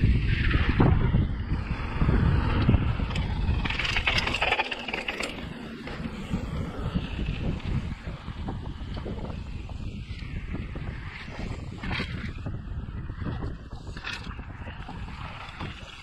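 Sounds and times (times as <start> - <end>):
bike tyre rumble on dirt: 0.0 - 16.0
wind buffeting microphone: 0.0 - 16.0
bike rattling and knocking: 2.5 - 9.5.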